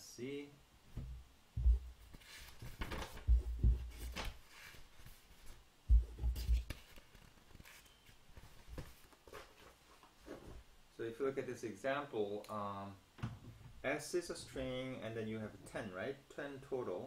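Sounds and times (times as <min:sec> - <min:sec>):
dull thumps of paper: 0:01.0 - 0:04.4.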